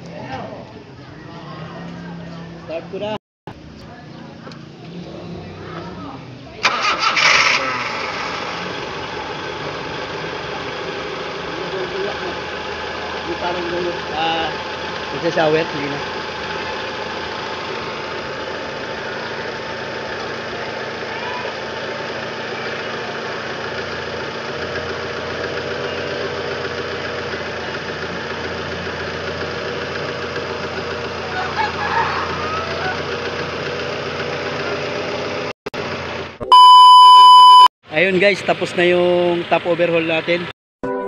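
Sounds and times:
car engine idling: 0.1 - 36.3
loud steady tone: 36.4 - 37.7.

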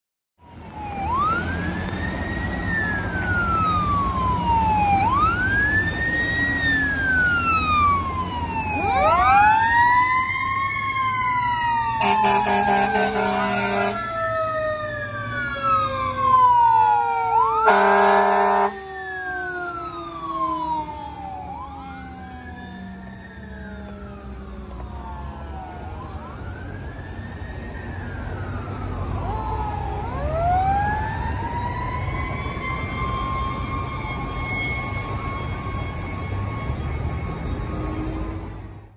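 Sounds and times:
fire engine siren wailing: 0.4 - 38.9
truck horn blasts: 12.0 - 14.0, 17.7 - 18.8.

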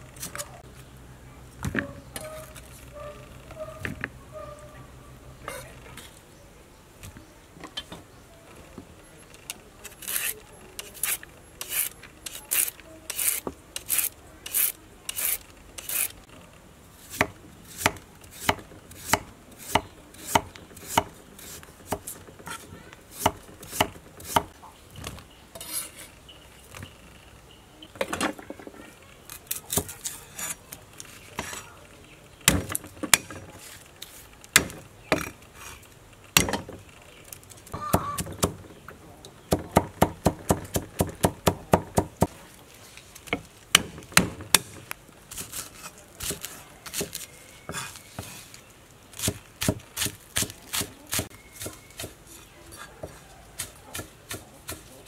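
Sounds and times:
knife chopping on wooden block: 17.1 - 21.2.

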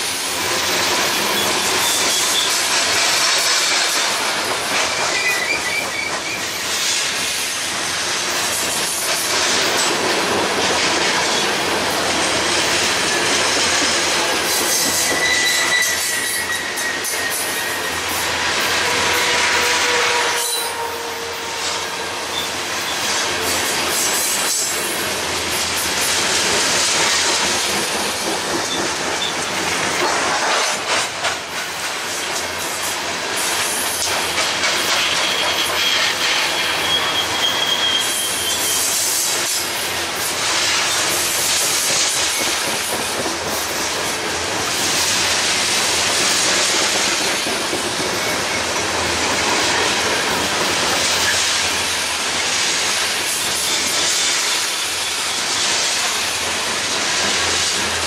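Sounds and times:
high wheel squeal: 1.1 - 2.7, 4.8 - 6.7, 14.7 - 23.1, 35.0 - 39.2.

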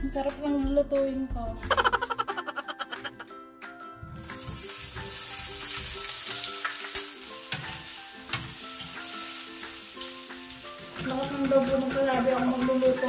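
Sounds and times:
food sizzling in hot oil: 4.2 - 13.0.

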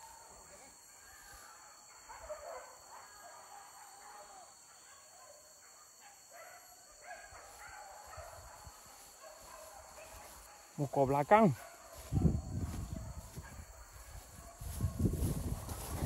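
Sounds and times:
hunting dogs barking and baying: 0.0 - 16.0.

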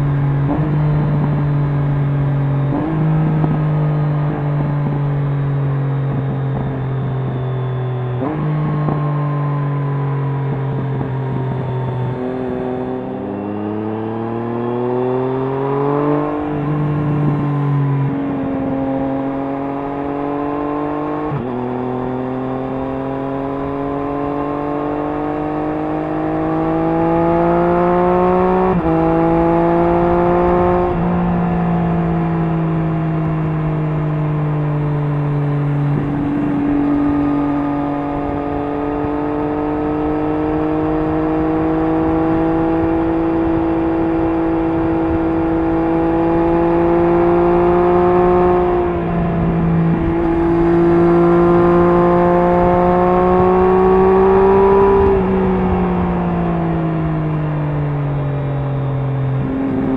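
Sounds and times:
wind noise: 0.0 - 13.6, 23.2 - 59.9
motorcycle engine accelerating: 0.0 - 59.9.

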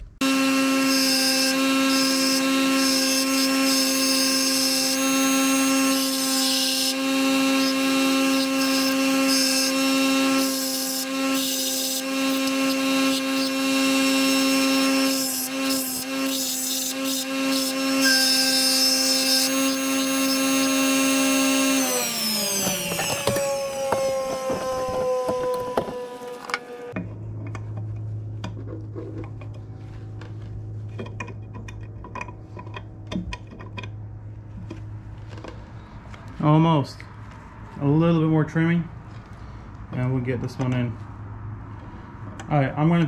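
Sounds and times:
bench grinder humming: 0.2 - 27.0
grinding wheel on metal: 0.2 - 27.0.

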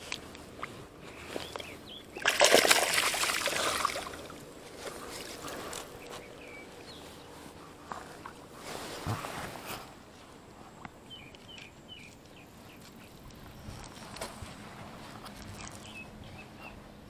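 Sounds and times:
water lapping: 1.5 - 9.1
shallow water splashing: 2.1 - 6.0.

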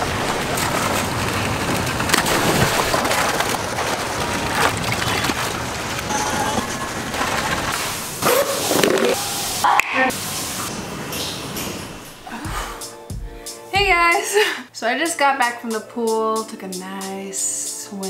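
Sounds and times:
swimming pool water splashing: 0.0 - 12.3.

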